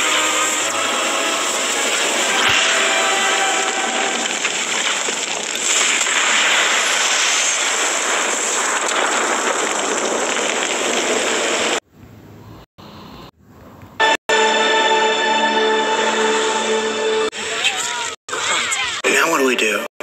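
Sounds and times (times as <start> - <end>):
storm wind and rain rushing: 0.0 - 11.9.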